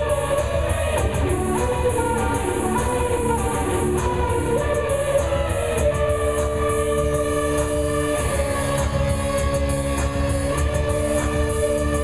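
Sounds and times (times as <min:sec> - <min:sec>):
electric guitar: 0:00.0 - 0:12.0
steady electronic beat: 0:00.0 - 0:12.0
synthesizer chords: 0:00.0 - 0:12.0.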